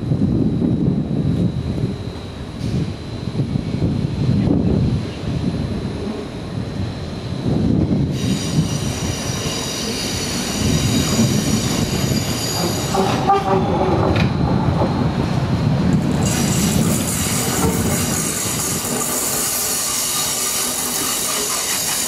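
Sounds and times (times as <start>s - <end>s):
high squealing hiss: 8.1s - 13.4s, 16.2s - 22.0s
high wheel squeal: 8.1s - 13.8s.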